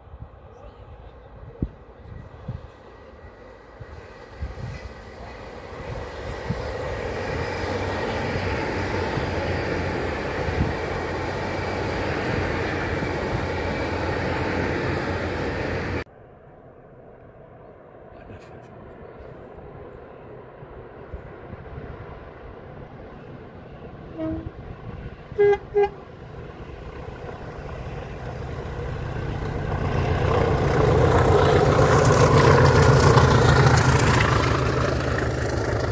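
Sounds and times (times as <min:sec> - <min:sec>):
diesel train passing: 0:00.0 - 0:35.9
train wheels on rails: 0:01.6 - 0:16.0, 0:26.1 - 0:35.9.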